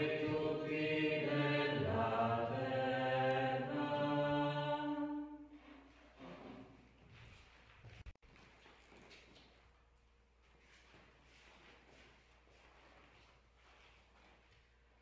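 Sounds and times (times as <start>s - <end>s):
slow chanted liturgical singing: 0.0s - 5.6s.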